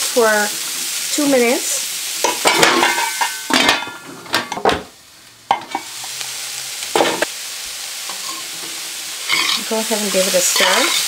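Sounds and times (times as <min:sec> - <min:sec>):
food sizzling in a pan: 0:00.0 - 0:11.0
spoon scraping through food: 0:09.3 - 0:09.6.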